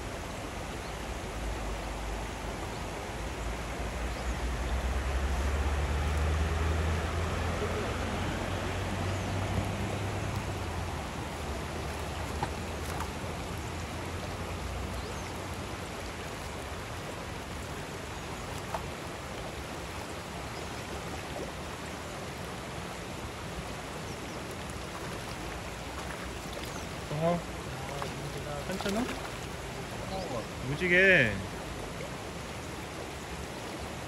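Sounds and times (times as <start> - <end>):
stream rippling over stones: 0.0 - 34.0.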